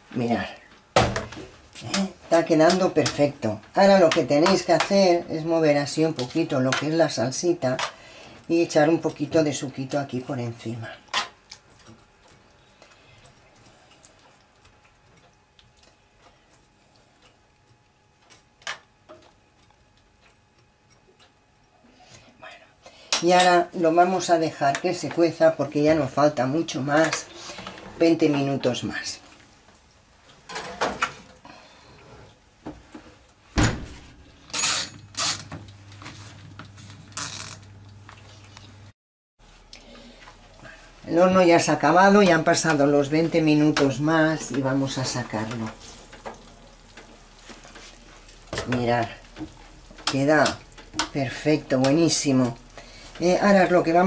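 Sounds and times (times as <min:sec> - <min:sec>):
low steady hum: 0:00.0 - 0:54.0
oven door banging shut: 0:33.6 - 0:34.2.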